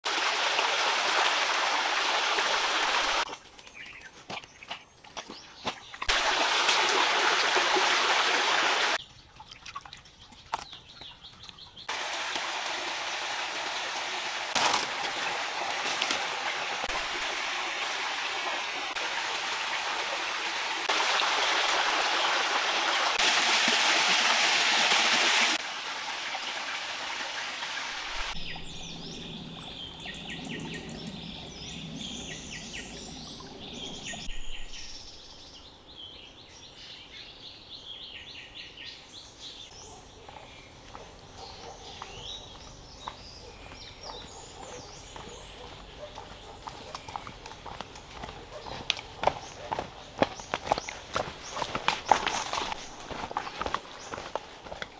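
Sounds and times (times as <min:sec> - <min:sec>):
stream running over rocks: 0:00.0 - 0:35.4, 0:46.6 - 0:54.9
birds calling and chirping: 0:27.8 - 0:54.9.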